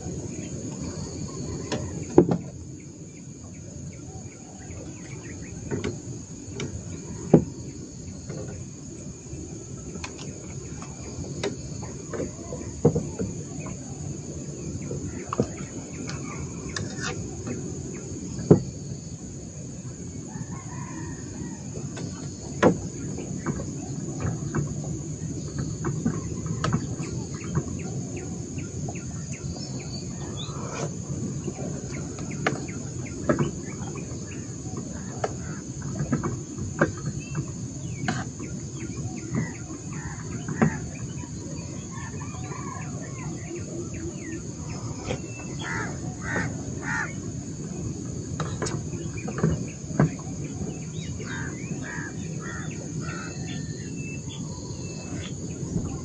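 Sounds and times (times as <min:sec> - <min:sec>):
insect drone: 0:00.0 - 0:56.0
birds chirping: 0:36.5 - 0:56.0.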